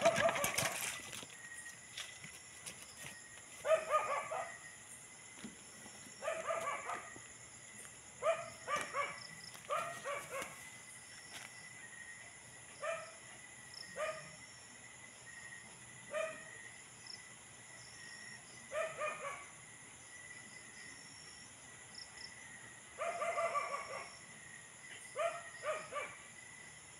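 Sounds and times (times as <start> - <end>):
dog barking: 0.0 - 0.8, 3.6 - 4.6, 6.2 - 7.2, 8.2 - 10.6, 12.8 - 13.2, 13.9 - 14.4, 16.1 - 16.5, 18.7 - 19.5, 23.0 - 24.2, 25.1 - 26.3
crickets chirring: 0.0 - 26.9.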